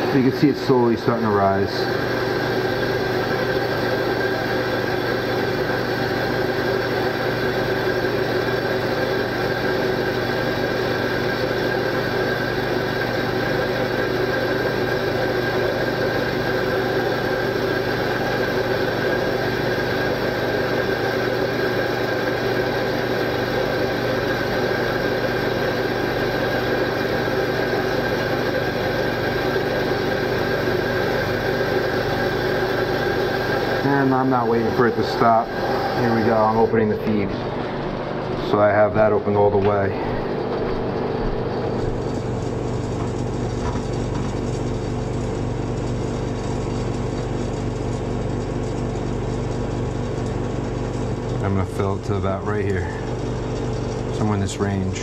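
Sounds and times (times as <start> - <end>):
water feeder humming: 0.0 - 55.0.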